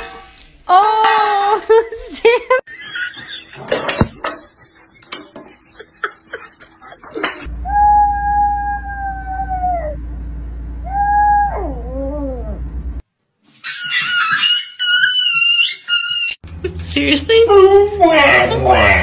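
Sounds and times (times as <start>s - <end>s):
steady low hum: 7.1s - 13.0s
high-pitched wavering animal cry: 7.6s - 9.8s
small dog howling: 7.6s - 10.0s, 10.8s - 12.6s.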